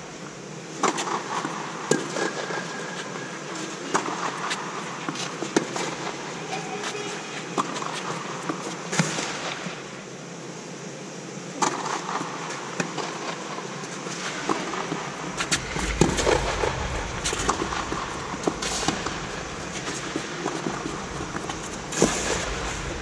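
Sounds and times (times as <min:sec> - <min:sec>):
steady background hum: 0:00.0 - 0:23.0
rackets hitting tennis ball: 0:14.2 - 0:23.0.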